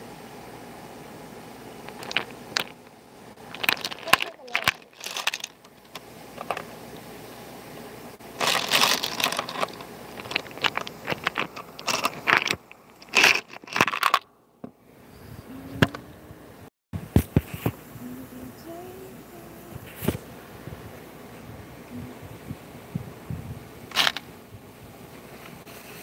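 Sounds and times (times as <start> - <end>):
metal parts clinking in plastic bin: 3.5 - 5.6, 8.4 - 14.2.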